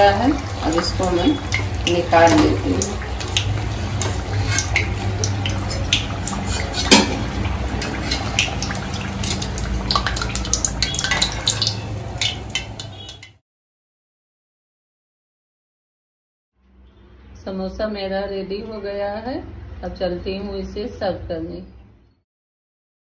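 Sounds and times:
oil sizzling: 0.0 - 13.4
metal strainer scraping a pan: 0.5 - 13.3.

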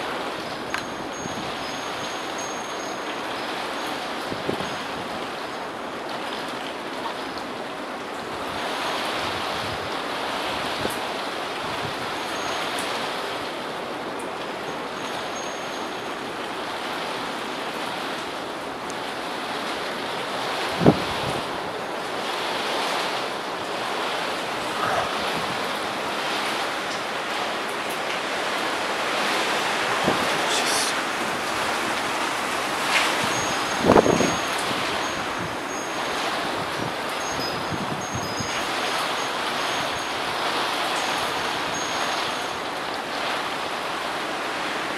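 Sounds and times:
rain falling: 0.0 - 44.9
wind roaring in gusts: 0.0 - 44.9.

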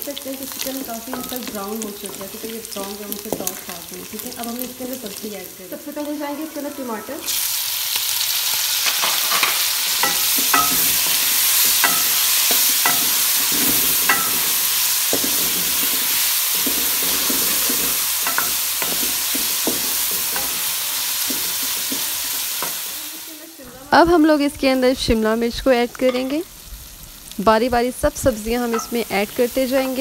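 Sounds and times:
food sizzling in a pan: 0.0 - 30.0
wooden spoon scraping a pan: 8.9 - 22.9.

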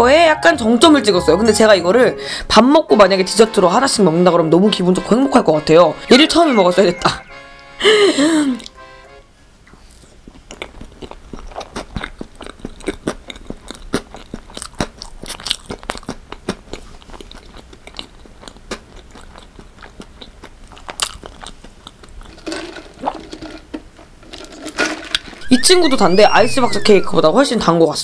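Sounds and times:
crunchy chewing: 9.8 - 23.5.

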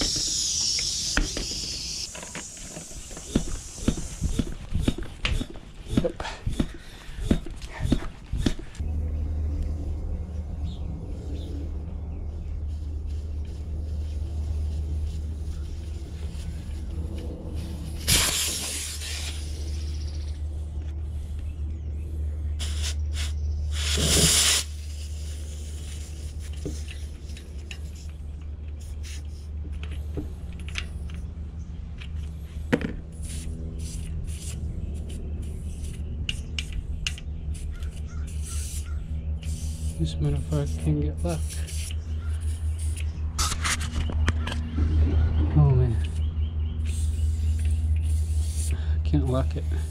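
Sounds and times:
air hissing from tyre: 0.0 - 8.8, 12.7 - 20.6, 22.6 - 27.3, 32.5 - 40.0, 46.8 - 49.9
steady low hum: 0.0 - 49.9
small clicks and scrapes: 40.5 - 45.0.

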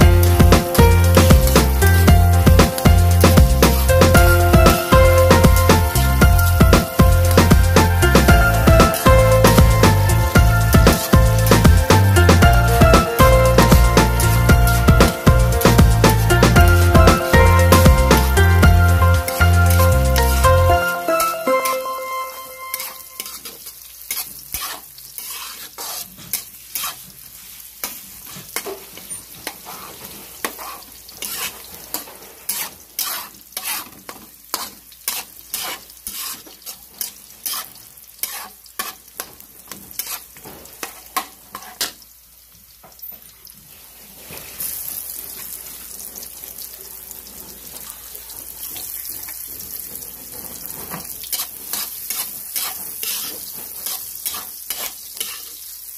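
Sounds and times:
food sizzling in a frying pan: 0.0 - 55.9
utensil scraping a pan: 22.8 - 27.2, 27.8 - 42.0, 49.4 - 55.6.

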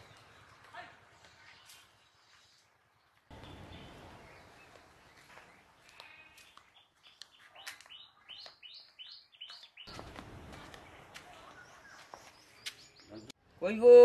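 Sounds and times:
bird chirping: 0.0 - 10.1, 10.8 - 13.4
outdoor background noise: 0.0 - 14.0.

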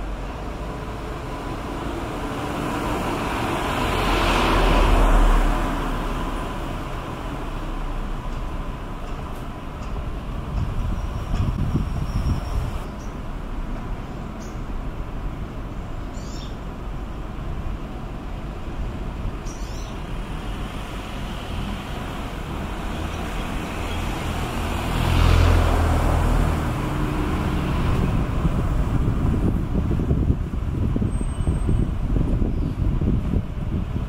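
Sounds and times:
motor vehicle passing close: 0.0 - 8.2, 20.6 - 31.0
street traffic rumble: 0.0 - 34.0.

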